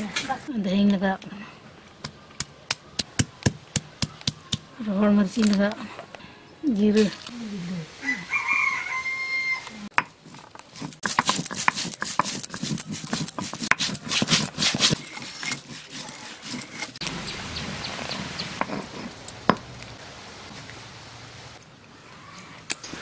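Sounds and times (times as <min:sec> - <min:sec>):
stone pestle pounding on wood: 0:11.0 - 0:15.8.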